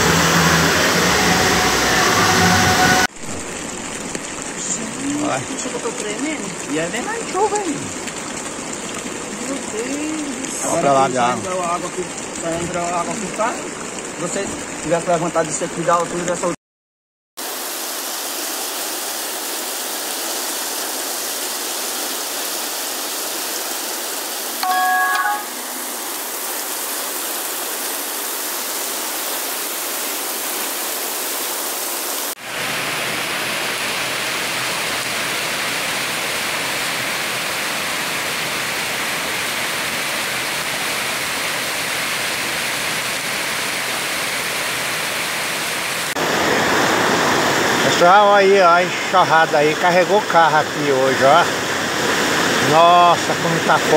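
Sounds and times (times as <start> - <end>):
floodwater running: 0.0 - 16.6, 17.4 - 53.9
heavy rain hiss: 0.0 - 16.6, 17.4 - 53.9
short pitched sound: 24.6 - 25.7.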